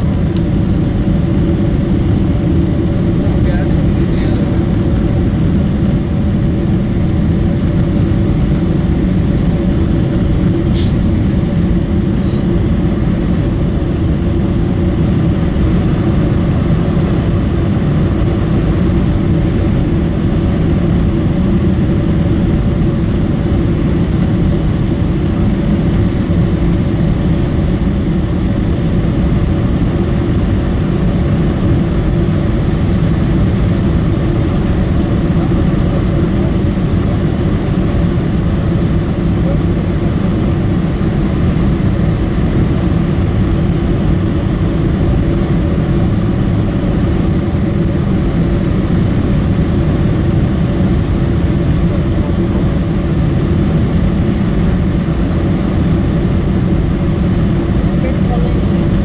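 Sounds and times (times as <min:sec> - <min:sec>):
airflow: 0:00.0 - 0:59.0
jet engine rumble in cabin: 0:00.0 - 0:59.0.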